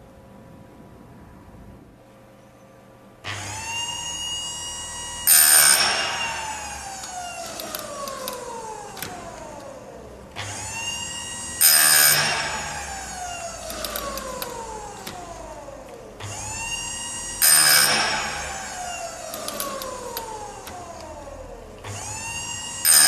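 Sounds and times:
sharpener motor whining: 0:03.3 - 0:23.0
grinding wheel on chain tooth: 0:05.2 - 0:09.4, 0:11.3 - 0:15.3, 0:16.4 - 0:21.0.

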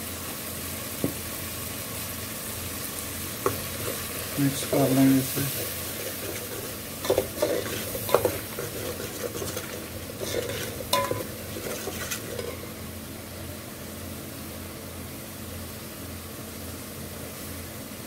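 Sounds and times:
food sizzling in oil: 0:00.0 - 0:18.0
metal ladle scraping a pot: 0:05.4 - 0:12.7.

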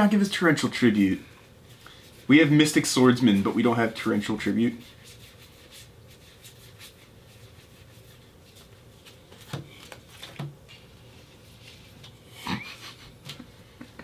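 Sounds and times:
cards rustling and clicking: 0:08.6 - 0:10.9.

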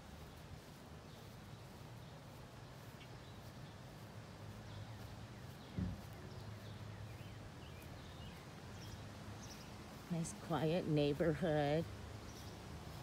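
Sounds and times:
birds chirping: 0:00.0 - 0:13.0
low thump: 0:05.7 - 0:06.2.

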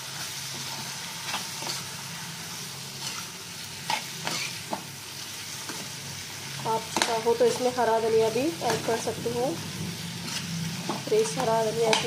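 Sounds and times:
frying sizzle: 0:00.0 - 0:12.0
spoon stirring in metal pan: 0:03.0 - 0:04.9, 0:06.7 - 0:09.2, 0:10.0 - 0:12.0.

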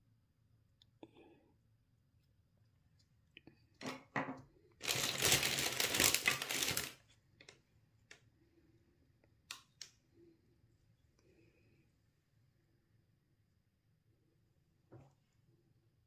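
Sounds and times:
packaging rustles: 0:04.8 - 0:07.0
plastic packaging crinkling and tearing: 0:04.8 - 0:07.0.

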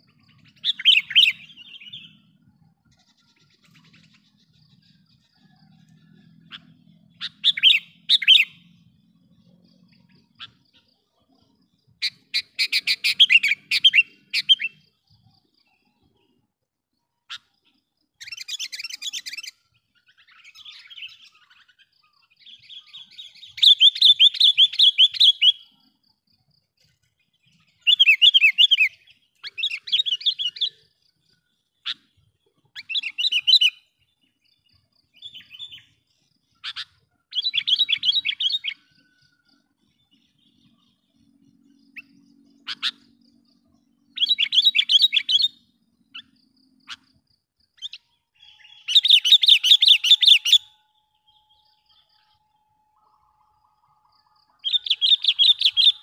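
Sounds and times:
bird sharp chattering calls: 0:00.0 - 0:02.2, 0:06.5 - 0:08.6, 0:12.0 - 0:14.8, 0:36.6 - 0:39.2, 0:41.9 - 0:43.2, 0:44.1 - 0:47.2, 0:47.8 - 0:50.7, 0:54.6 - 0:56.0.

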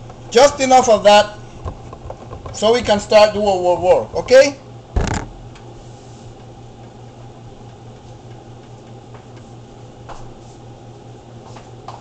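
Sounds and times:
low hum: 0:04.0 - 0:08.6.

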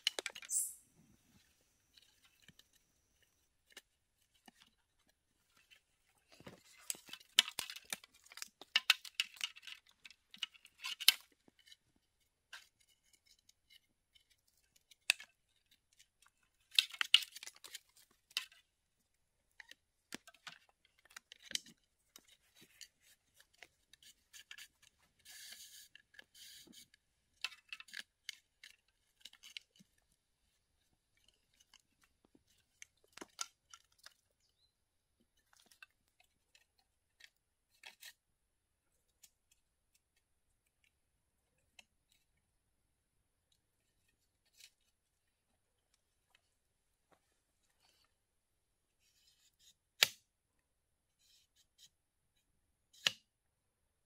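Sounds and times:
clicks scrapes and crackles: 0:00.0 - 0:00.7, 0:01.4 - 0:34.5, 0:35.2 - 0:38.2, 0:43.5 - 0:48.1, 0:49.0 - 0:50.3, 0:52.9 - 0:53.3.

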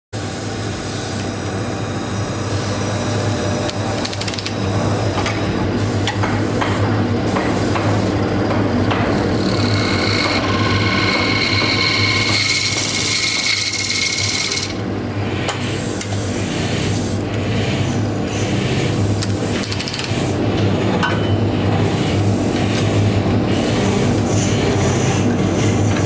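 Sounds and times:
lathe motor hum: 0:00.4 - 0:20.8
rough wood cutting noise: 0:09.4 - 0:14.8.

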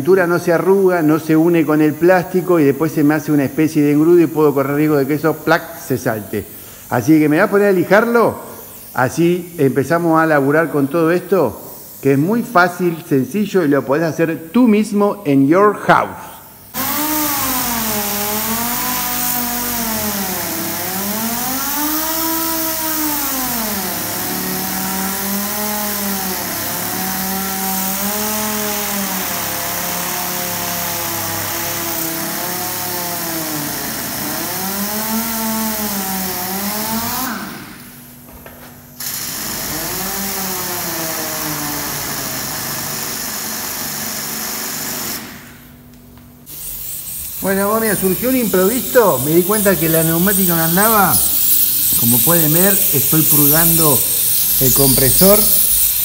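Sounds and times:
air hiss: 0:00.7 - 0:14.6, 0:16.4 - 0:38.0, 0:46.4 - 0:56.0
air sander whining: 0:16.5 - 0:56.0.

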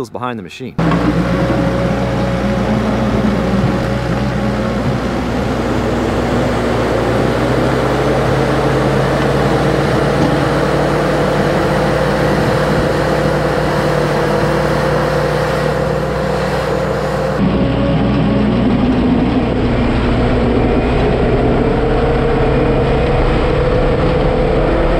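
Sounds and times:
constant whine: 0:00.0 - 0:24.9
diesel engine running: 0:00.8 - 0:24.9.

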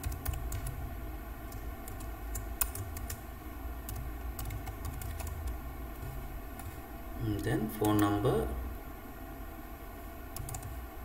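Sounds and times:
keyboard typing clicks: 0:00.0 - 0:00.8, 0:01.5 - 0:03.2, 0:03.9 - 0:06.8, 0:07.7 - 0:08.1, 0:10.4 - 0:10.8
steady low hum: 0:00.0 - 0:11.0.

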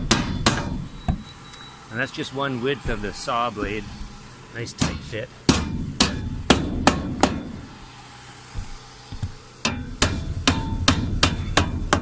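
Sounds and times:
hammer pounding metal: 0:00.0 - 0:01.2, 0:02.8 - 0:07.8, 0:09.6 - 0:12.0.

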